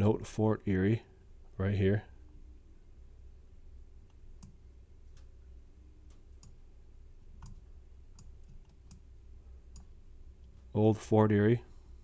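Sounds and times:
low steady hum: 0:00.0 - 0:12.0
computer mouse clicking: 0:04.0 - 0:05.4, 0:06.1 - 0:06.6, 0:07.4 - 0:09.1, 0:09.7 - 0:10.6.

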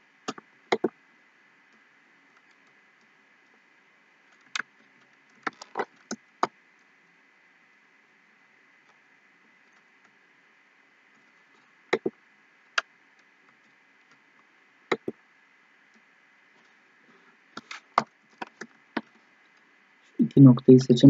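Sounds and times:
faint steady hiss: 0:00.0 - 0:21.0
computer mouse clicking: 0:00.3 - 0:00.9, 0:11.9 - 0:12.1, 0:14.9 - 0:15.2.

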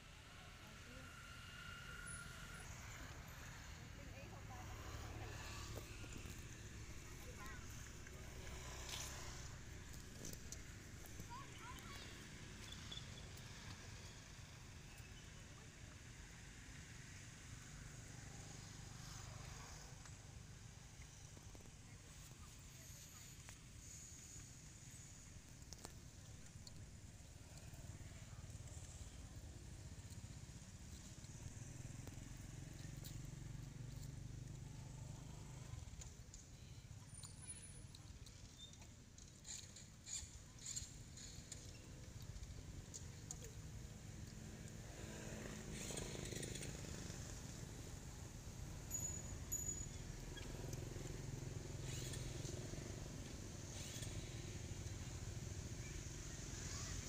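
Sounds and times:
faint high chirps: 0:10.2 - 0:15.6.

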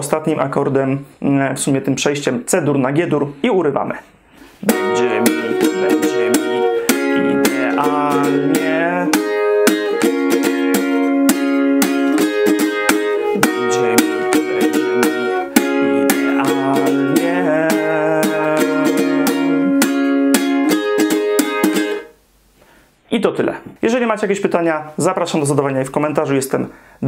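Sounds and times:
ukulele strumming: 0:04.5 - 0:22.2.

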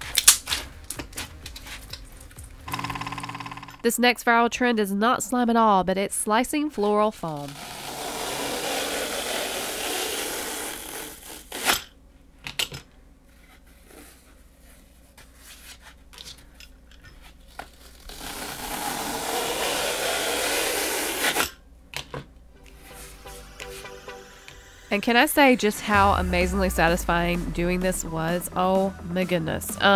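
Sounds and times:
peeler scraping floral foam: 0:07.5 - 0:11.8.

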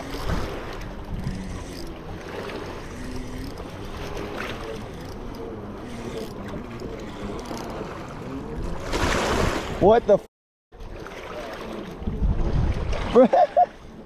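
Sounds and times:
waves lapping on rocks: 0:00.0 - 0:04.9, 0:05.8 - 0:10.1, 0:10.8 - 0:13.7
wind buffeting microphone: 0:12.0 - 0:13.1.

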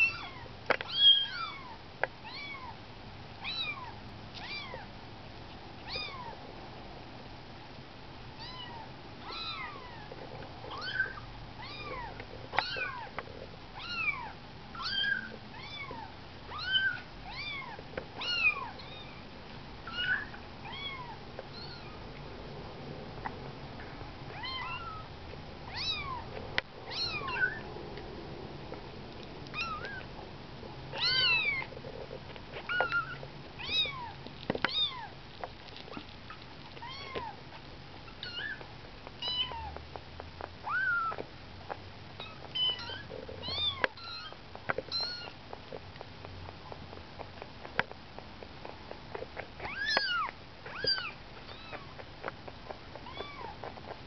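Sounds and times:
kittens mewing: 0:30.9 - 0:31.7, 0:53.0 - 0:53.7.

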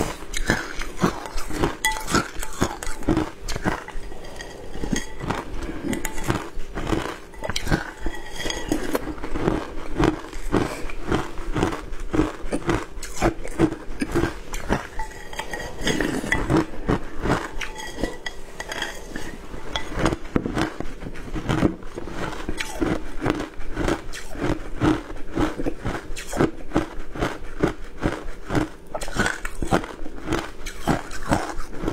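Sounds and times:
ice being crunched and chewed: 0:00.0 - 0:31.9
glass bowl clinking: 0:01.6 - 0:03.0, 0:03.6 - 0:06.5, 0:07.3 - 0:09.1, 0:14.6 - 0:16.7, 0:17.5 - 0:20.1.

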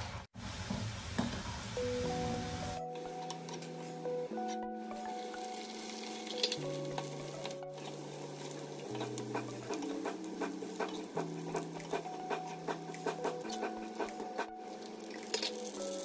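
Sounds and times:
soft background music: 0:01.3 - 0:16.0
okra sizzling in hot oil: 0:05.1 - 0:12.0, 0:14.6 - 0:16.0
oil crackling spatters: 0:12.8 - 0:16.0.

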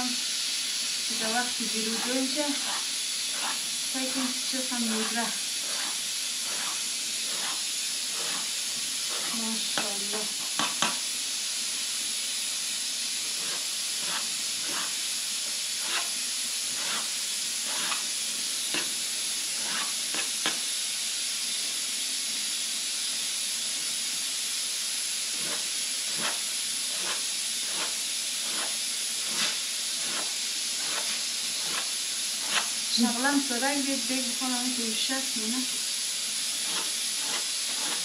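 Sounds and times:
steady hiss: 0:00.0 - 0:38.0
knife cutting dough on metal tray: 0:04.9 - 0:07.6.

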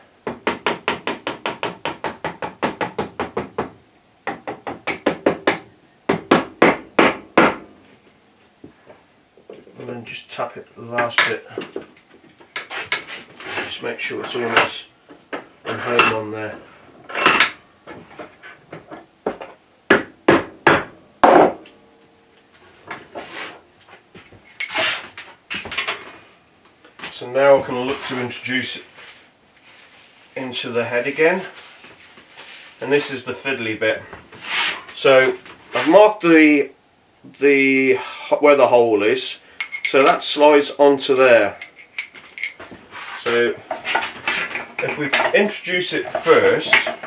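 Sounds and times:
handling and scraping noises: 0:10.8 - 0:19.6, 0:22.4 - 0:36.2, 0:39.6 - 0:47.0.

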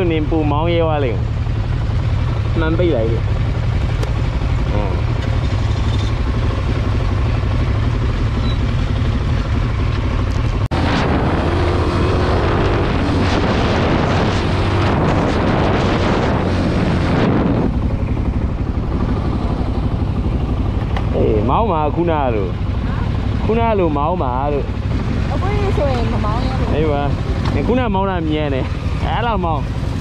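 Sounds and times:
motorcycle engine and road rumble: 0:00.0 - 0:30.0
wind rushing over microphone: 0:10.4 - 0:22.1.

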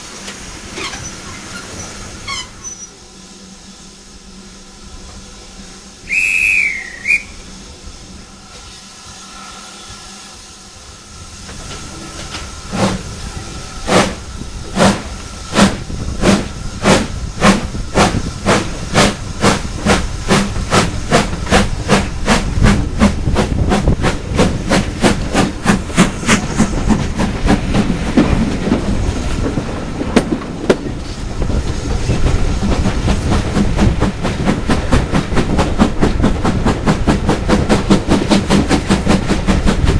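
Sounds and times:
carriages rumbling on rails: 0:00.0 - 0:39.9
steam hiss: 0:00.0 - 0:39.9
steam locomotive exhaust chuffs: 0:00.0 - 0:39.9
steam train whistle: 0:05.7 - 0:11.0.

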